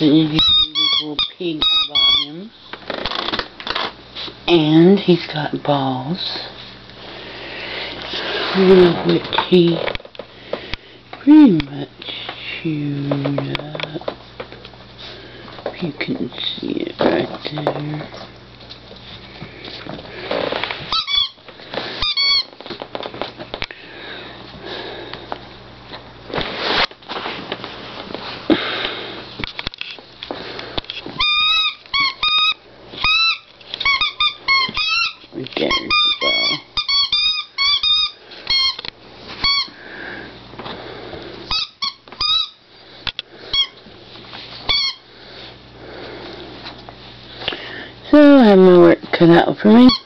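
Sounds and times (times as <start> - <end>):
toy squeak: 0.3 - 2.4, 20.9 - 21.4, 22.0 - 22.5, 31.2 - 38.8, 39.4 - 39.7, 41.5 - 42.6, 43.5 - 43.8, 44.7 - 45.0.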